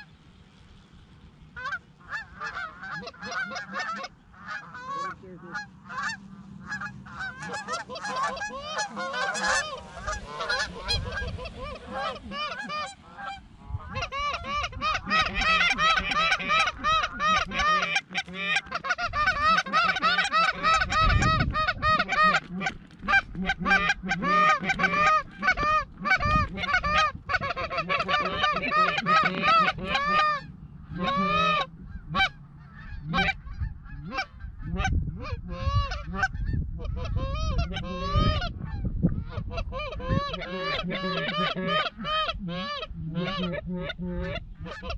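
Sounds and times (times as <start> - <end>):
goose calls honking: 1.6 - 44.9.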